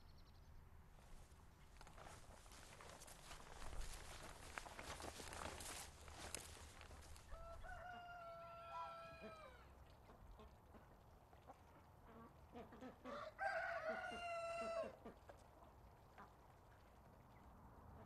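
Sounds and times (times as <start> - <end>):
rooster crowing: 7.3 - 9.6, 13.1 - 14.9.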